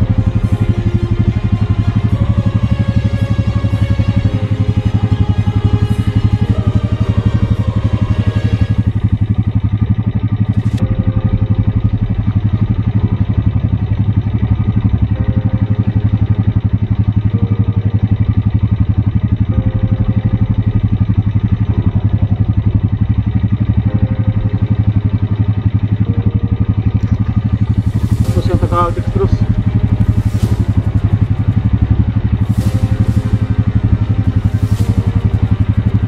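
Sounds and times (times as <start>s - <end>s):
engine idling: 0.0s - 36.0s.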